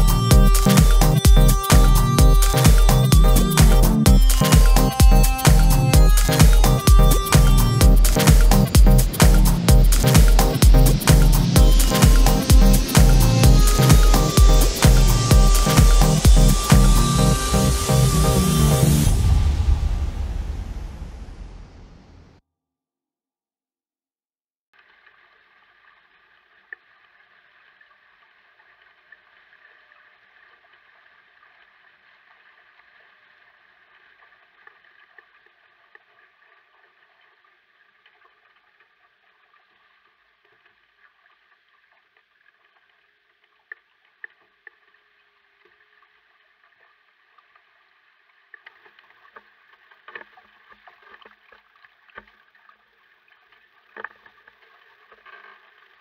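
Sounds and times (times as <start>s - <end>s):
sharp water splashes: 0.0s - 21.0s
water rushing along boat hull: 0.0s - 21.5s.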